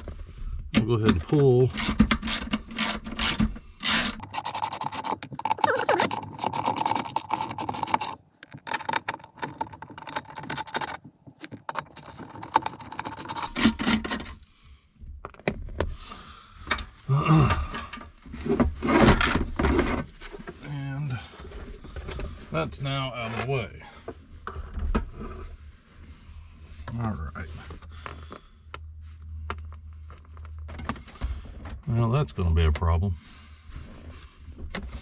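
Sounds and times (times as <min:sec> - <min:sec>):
plastic parts scraping and knocking: 0:01.0 - 0:14.4, 0:17.9 - 0:20.6, 0:33.8 - 0:35.0.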